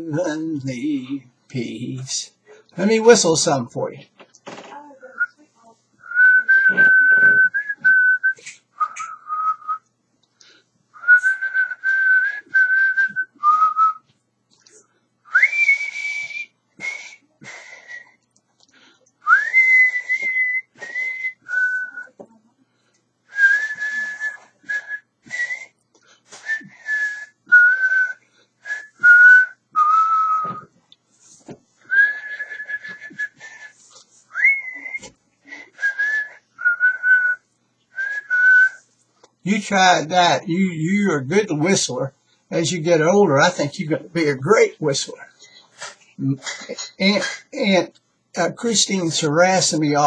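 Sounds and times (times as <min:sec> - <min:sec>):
man whistling a slow melody: 0:06.0 - 0:09.9, 0:11.0 - 0:14.1, 0:15.3 - 0:18.2, 0:19.2 - 0:22.1, 0:23.3 - 0:25.7, 0:26.4 - 0:30.7, 0:31.9 - 0:37.4, 0:38.0 - 0:38.8.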